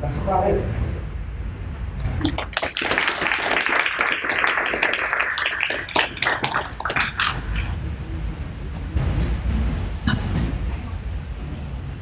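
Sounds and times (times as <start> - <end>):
audience applauding: 2.2 - 7.8.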